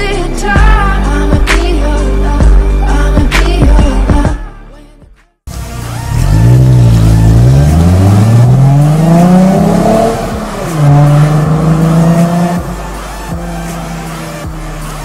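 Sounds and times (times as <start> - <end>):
car engine accelerating: 5.5 - 15.0.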